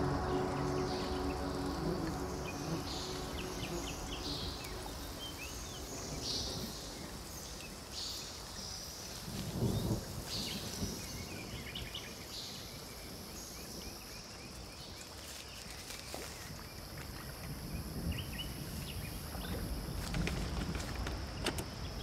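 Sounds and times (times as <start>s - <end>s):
steady low rumble: 0.0s - 8.0s.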